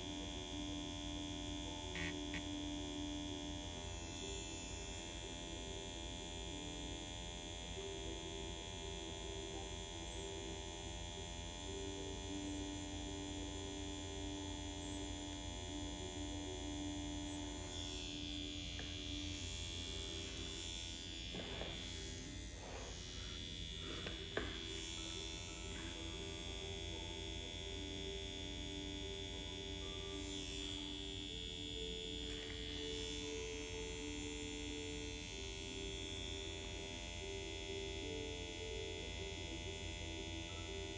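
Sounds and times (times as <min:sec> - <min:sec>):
tattoo machine pen buzzing: 0:00.0 - 0:40.9.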